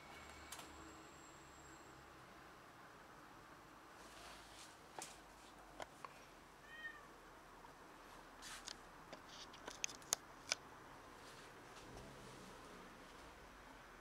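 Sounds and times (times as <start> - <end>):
cat meow: 6.6 - 7.1.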